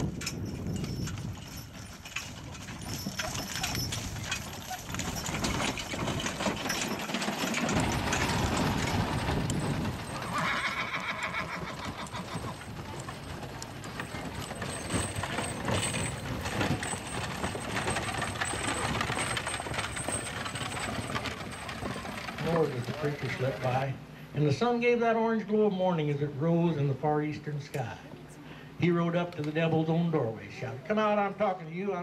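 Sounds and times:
hooves clip-clopping: 0.0 - 24.0
horse whinny: 10.1 - 12.8.

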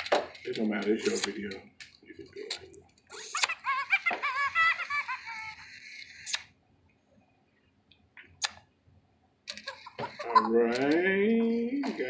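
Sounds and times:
sharp plastic clicks: 0.0 - 3.6, 6.2 - 6.5, 7.9 - 8.7
toy electronic chattering giggle: 2.2 - 6.5, 9.5 - 12.0.

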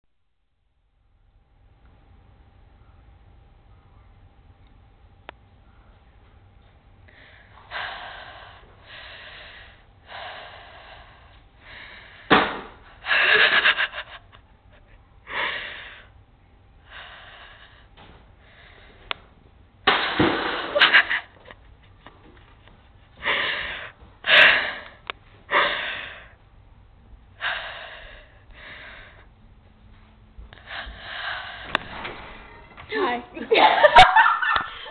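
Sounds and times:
stifled breathy laughter: 13.0 - 15.8.

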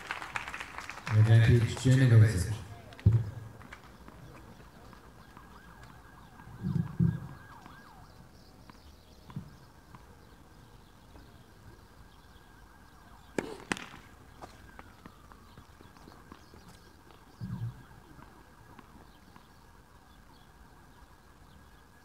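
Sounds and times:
tennis ball bouncing on court: 2.8 - 3.4, 8.6 - 10.3, 13.3 - 19.5
ball hitting racket: 13.3 - 14.6.

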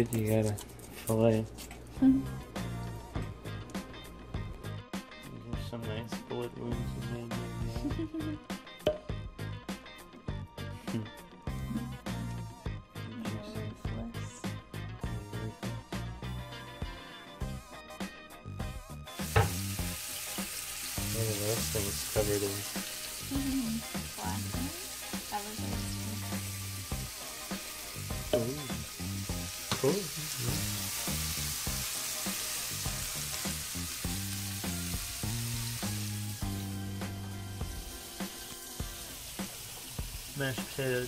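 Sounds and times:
fish fillets sizzling in a pan: 19.2 - 41.0.

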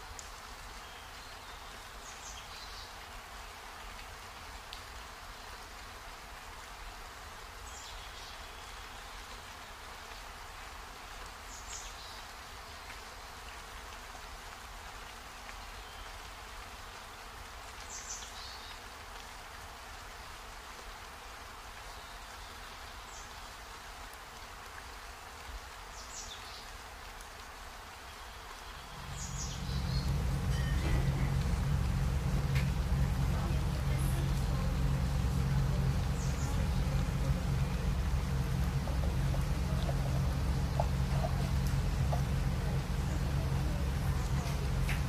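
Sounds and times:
low hum: 28.9 - 45.0.

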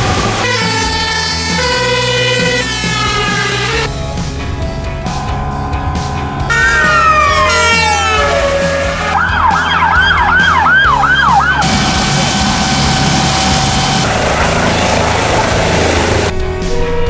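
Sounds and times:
emergency vehicle siren: 0.0 - 3.9, 5.2 - 17.0
background music: 0.0 - 17.0.

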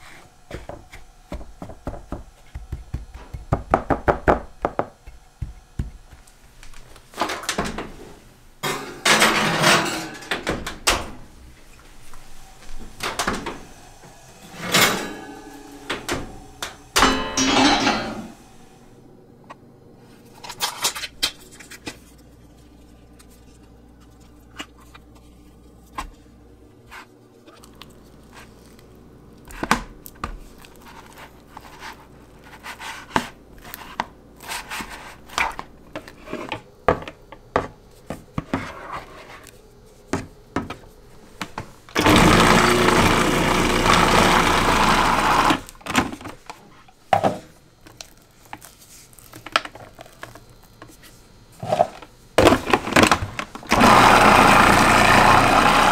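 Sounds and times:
pie dish clattering on oven rack: 8.6 - 10.6, 17.0 - 18.4
spatula scraping plastic bowl: 30.6 - 36.6
food processor motor whirring: 42.0 - 45.7, 53.7 - 55.9.

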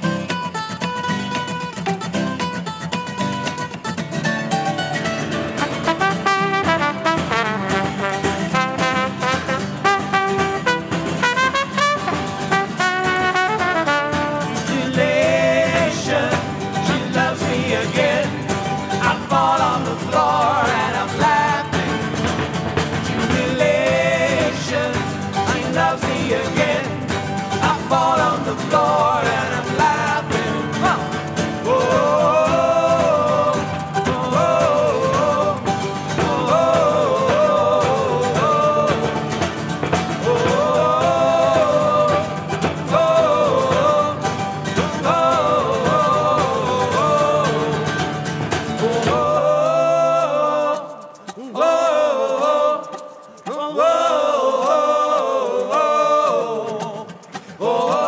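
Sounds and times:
band accompaniment: 5.4 - 49.3
male voices singing in harmony: 5.5 - 58.0
trumpet solo: 5.6 - 14.7.

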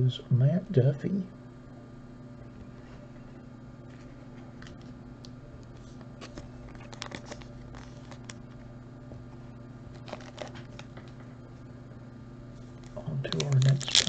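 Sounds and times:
steady low hum: 0.0 - 14.0
foil wrapper crinkling: 6.3 - 8.6, 9.9 - 11.2, 12.7 - 14.0.

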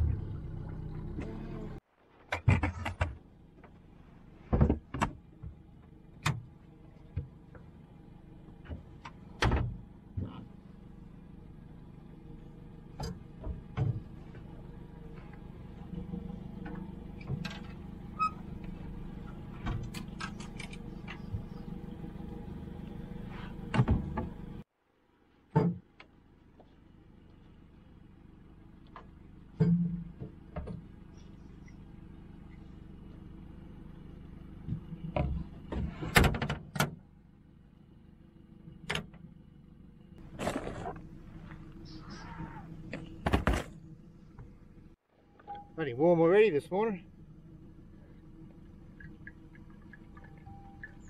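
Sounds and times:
steady low hum: 37.0 - 51.0.

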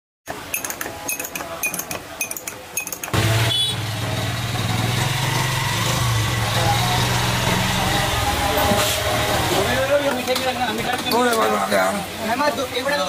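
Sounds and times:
glass and metal clinks: 0.5 - 3.1
engine hum: 3.1 - 10.1.

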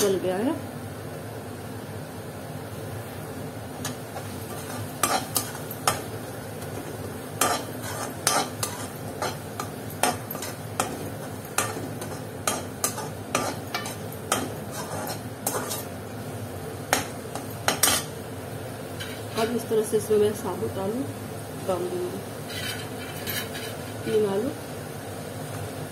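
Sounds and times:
spoon stirring and scraping tomatoes: 3.8 - 16.2, 16.9 - 18.1, 18.9 - 19.7, 22.4 - 24.4.

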